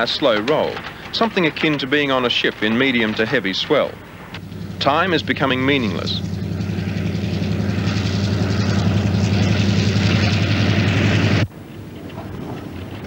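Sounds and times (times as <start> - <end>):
rail and wheel noise: 0.0 - 13.0
train engine drone: 0.0 - 13.0.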